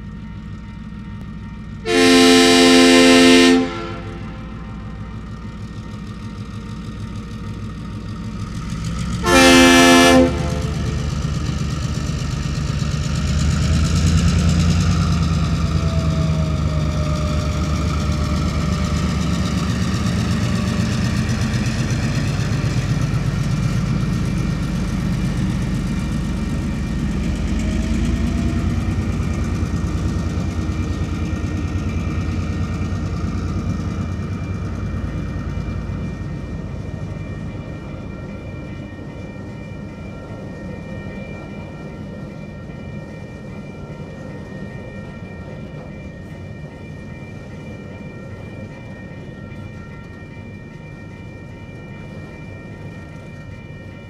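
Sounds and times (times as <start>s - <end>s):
diesel locomotive engine rumble: 0.0s - 54.0s
train horn blast: 1.9s - 5.0s, 9.2s - 11.0s.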